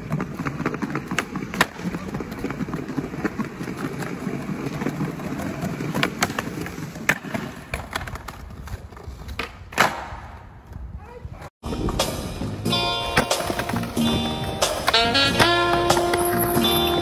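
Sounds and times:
skateboard tail clacking: 0.0s - 10.4s, 12.8s - 17.0s
skateboard wheels rolling on stone: 0.0s - 11.0s, 11.7s - 17.0s.

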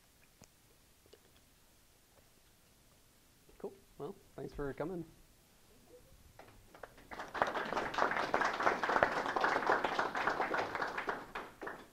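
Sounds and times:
small audience applauding: 6.4s - 11.9s.

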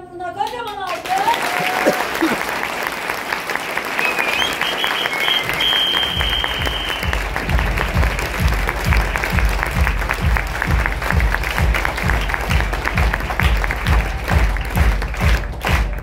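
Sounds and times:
audience applauding: 0.9s - 16.0s
high held whistle: 3.9s - 7.2s
music with steady bass beat: 6.0s - 16.0s.

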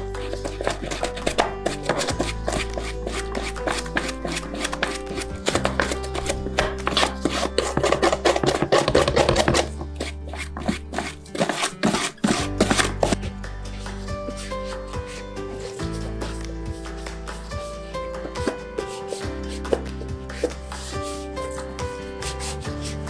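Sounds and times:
background music with held notes: 0.0s - 23.0s
brush scrubbing hard surface: 0.0s - 23.0s.

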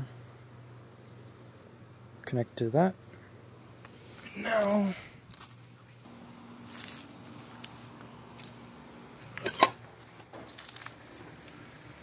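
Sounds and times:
dry leaves crunching underfoot: 6.6s - 8.6s, 10.0s - 11.2s.

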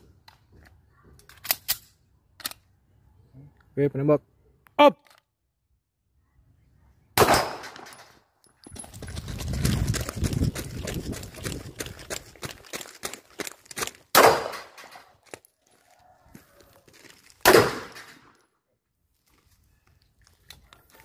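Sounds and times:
handgun shots: 7.2s - 8.1s, 14.1s - 15.0s, 17.4s - 18.3s
running footsteps on gravel: 8.6s - 14.1s, 15.1s - 17.4s.

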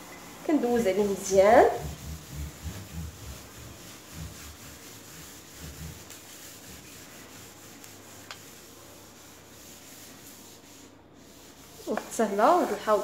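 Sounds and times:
sponge scrubbing steel sink: 0.0s - 13.0s.

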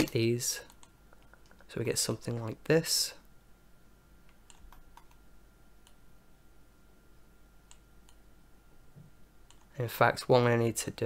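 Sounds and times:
computer mouse clicks: 0.0s - 1.7s, 4.3s - 5.2s, 7.6s - 8.2s, 9.4s - 9.7s.

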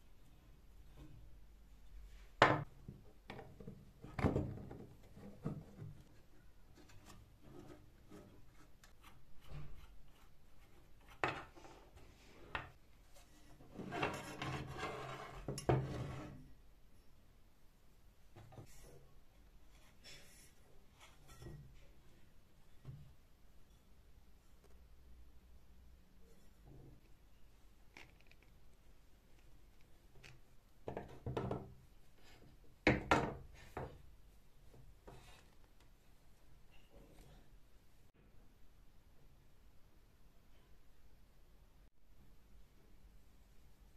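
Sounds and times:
metal scraping on wood: 13.6s - 16.4s.

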